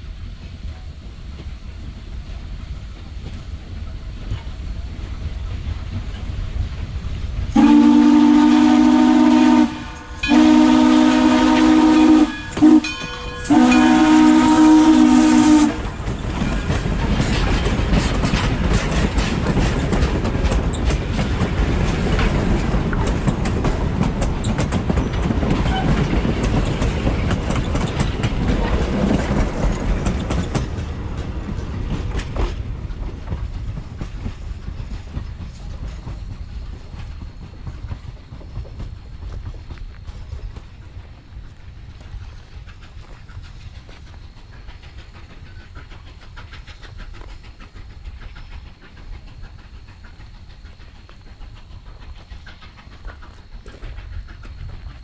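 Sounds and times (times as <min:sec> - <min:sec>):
train rumble: 0:00.0 - 0:55.0
steam whistle: 0:07.6 - 0:15.9
wheels clacking over rail joints: 0:08.6 - 0:55.0.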